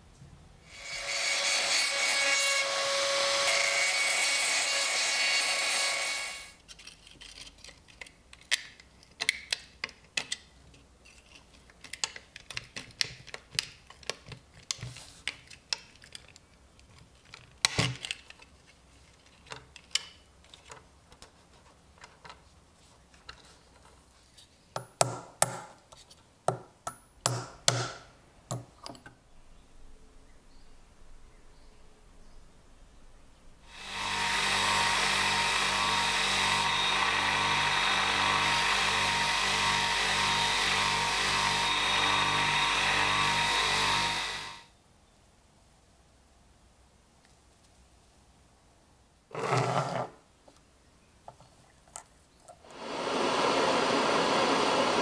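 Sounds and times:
small power tool running: 0.7 - 6.6, 33.7 - 44.7, 52.7 - 55.0.

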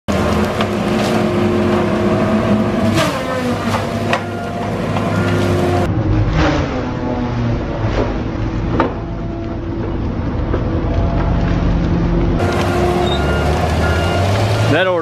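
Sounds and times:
wood cracking: 0.1 - 1.9
engine and saw droning: 0.1 - 15.0.

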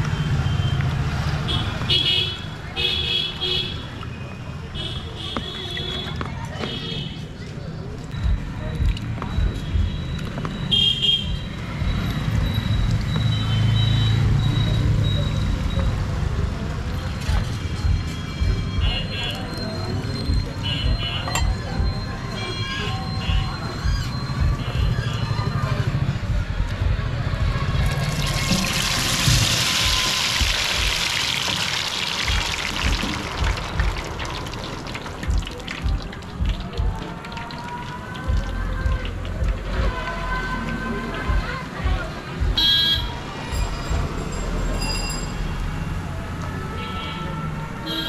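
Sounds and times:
traffic engine rumble: 0.0 - 48.0
background music with a beat: 8.1 - 13.3, 17.4 - 19.1, 20.2 - 22.3, 23.2 - 25.0, 29.0 - 31.3, 32.2 - 40.2, 41.3 - 44.2
food frying in hot oil: 27.8 - 39.2
vehicle horn toot: 42.6 - 43.1.

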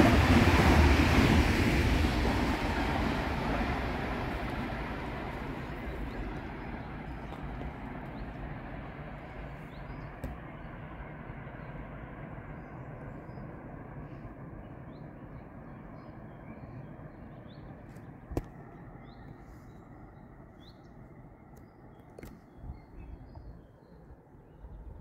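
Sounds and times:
train rumbling: 0.0 - 11.0.

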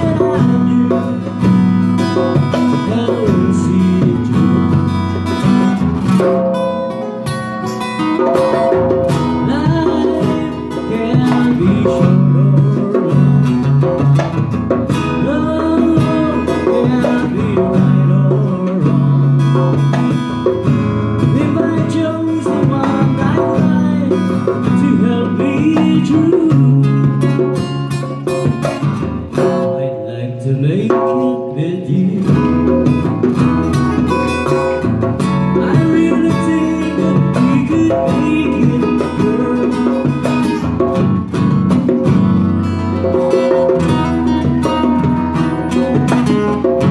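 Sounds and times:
person singing: 0.0 - 1.6, 2.2 - 5.1, 6.2 - 13.9, 15.0 - 19.9, 21.2 - 27.8, 29.4 - 32.9, 35.3 - 40.6, 43.1 - 46.9
hand-played djembe: 0.0 - 46.9
strummed acoustic guitar: 0.0 - 46.9.

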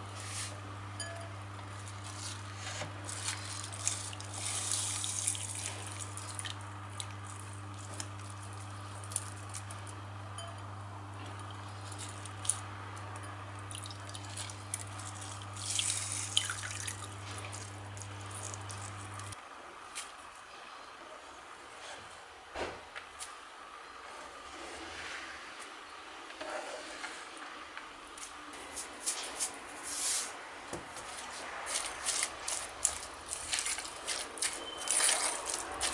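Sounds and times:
steady low hum: 0.0 - 34.6
wet rustles and drips: 3.1 - 9.8, 13.6 - 20.3, 31.0 - 35.9.

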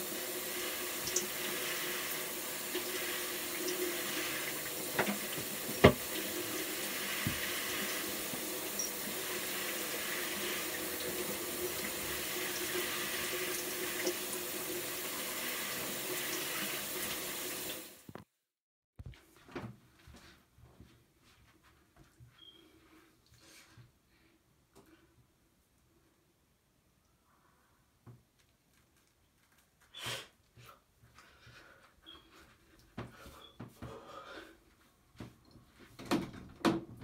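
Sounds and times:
tap water running: 0.0 - 18.2.

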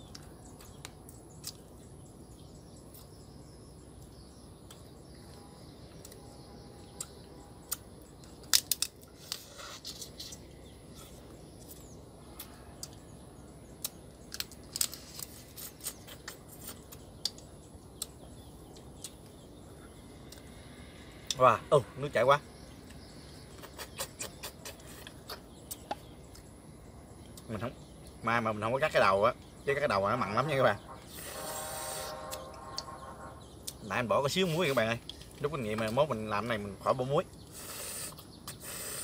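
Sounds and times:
crab shell cracking: 8.4 - 9.4.

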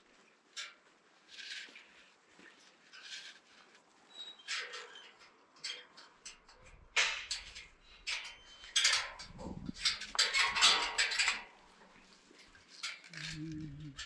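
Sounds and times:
light clattering against fence: 4.4 - 14.0.

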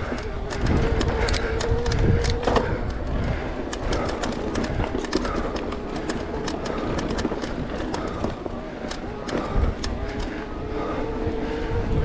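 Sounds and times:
wind noise on microphone: 0.0 - 8.4, 9.0 - 12.0
bike clicking and rattling: 0.0 - 12.0.

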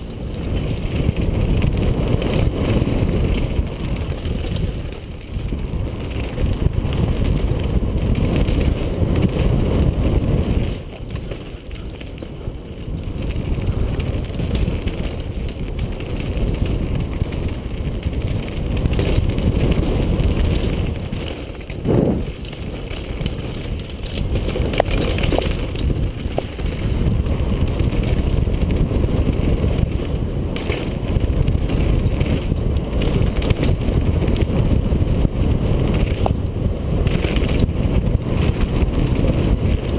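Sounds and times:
bike knocking and rattling: 0.0 - 39.9
tyres on dirt: 0.0 - 39.9
wind buffeting microphone: 0.0 - 39.9.

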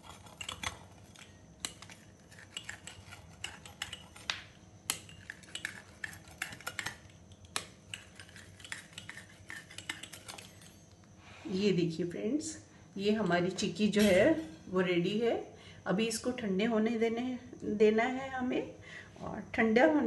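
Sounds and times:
pizza cutter scoring brittle: 0.0 - 10.9.

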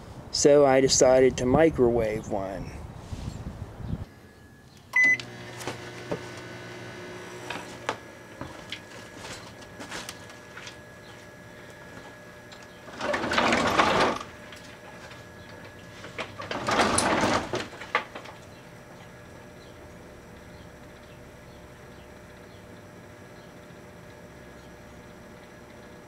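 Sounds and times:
microwave oven humming: 3.8 - 26.0
microwave beep: 4.2 - 7.5.

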